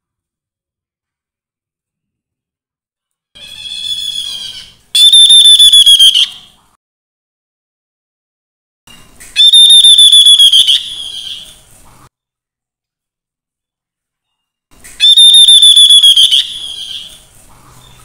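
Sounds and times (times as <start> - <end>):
bird whistling stuttering phrases: 5.0 - 6.5, 9.4 - 11.4, 15.0 - 17.1.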